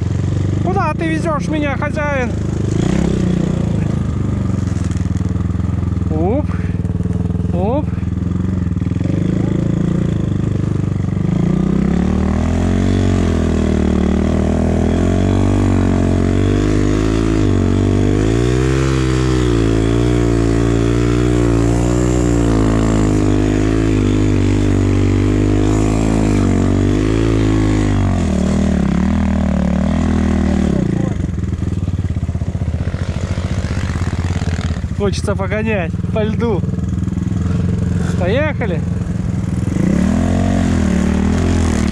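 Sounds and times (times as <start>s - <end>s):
motorcycle engine revving: 0.0s - 41.9s.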